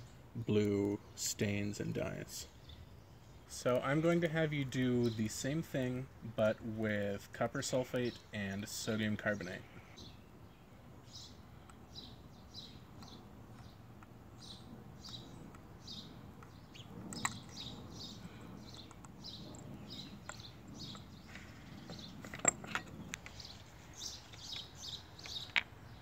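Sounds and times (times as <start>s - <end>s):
bird chirping: 8.0s - 26.0s.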